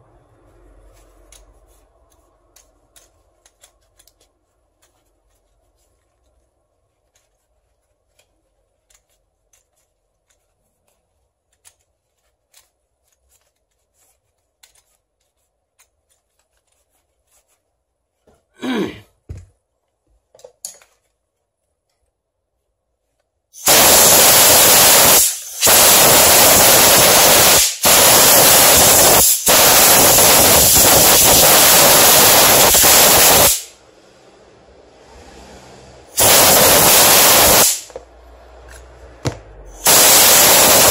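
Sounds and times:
clicks of parts being handled: 20.3 - 21.2
compressed air blow gun hissing: 23.6 - 33.7, 36.2 - 38.0, 39.7 - 40.9.

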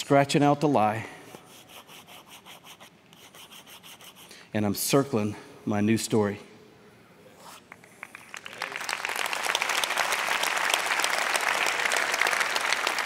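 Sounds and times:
congregation applauding: 7.9 - 13.0.

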